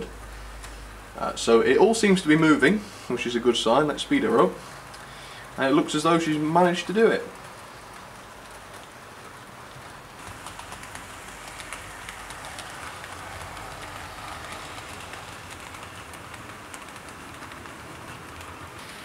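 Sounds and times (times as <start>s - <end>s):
model train rolling rumble: 5.6s - 19.0s
wheels clicking over rail joints: 5.8s - 19.0s.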